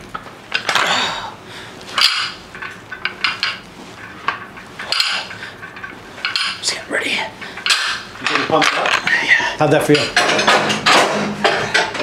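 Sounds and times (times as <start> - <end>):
dumbbell weight plates clanking: 1.9 - 6.7, 7.4 - 12.0.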